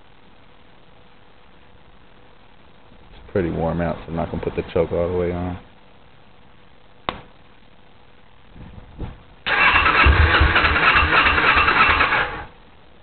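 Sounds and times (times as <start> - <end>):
electric starter cranking engine: 9.5 - 12.5.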